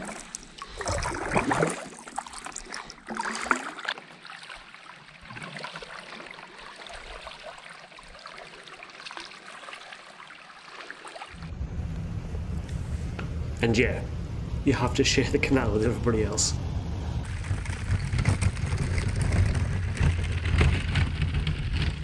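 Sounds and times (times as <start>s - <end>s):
paddle blades splashing: 0.0s - 11.5s
water trickling and lapping: 0.0s - 11.6s.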